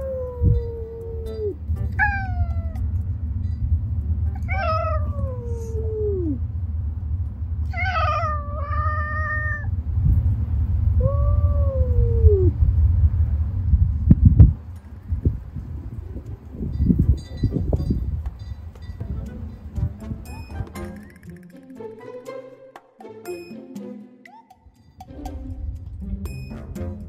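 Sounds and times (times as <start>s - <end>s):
cats meowing: 0.0s - 2.9s, 4.3s - 6.4s, 7.7s - 9.7s, 11.0s - 12.5s
steady low rumble: 0.0s - 21.3s, 24.8s - 27.0s.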